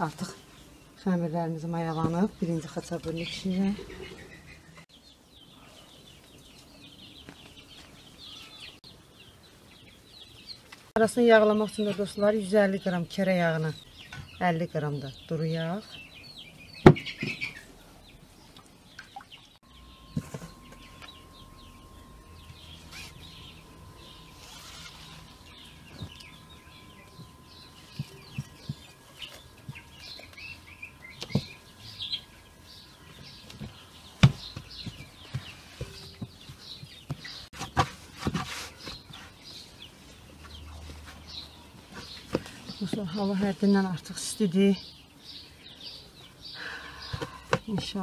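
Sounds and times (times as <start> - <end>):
small birds chirping: 0.0 - 48.0
chickens clucking: 3.1 - 4.8
faint steady high tone: 19.6 - 36.6.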